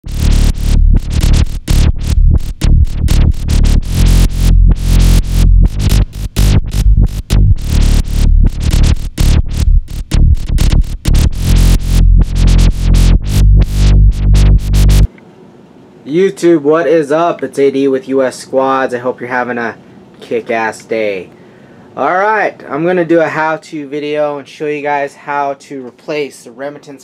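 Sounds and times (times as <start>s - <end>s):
electronic music with pulsing beat: 0.0s - 15.1s.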